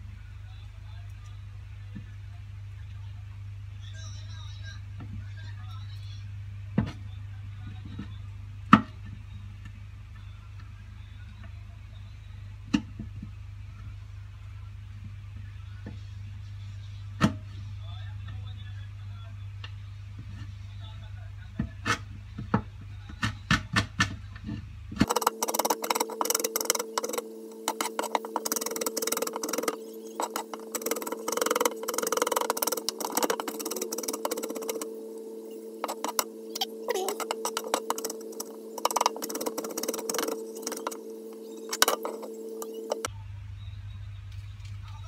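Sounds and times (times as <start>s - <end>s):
steady hum: 24.0s - 44.2s.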